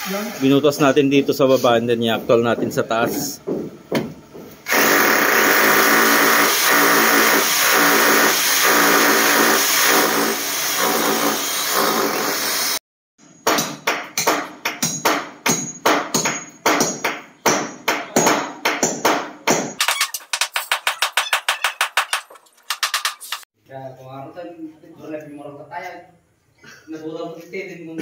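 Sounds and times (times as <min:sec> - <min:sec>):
power drill boring into concrete: 0:04.7 - 0:12.8.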